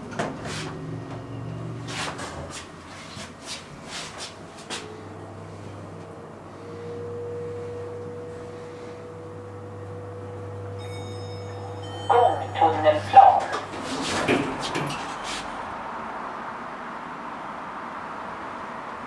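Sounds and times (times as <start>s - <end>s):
elevator drive hum and whine: 0.0s - 19.0s
faint high tones: 6.6s - 13.7s.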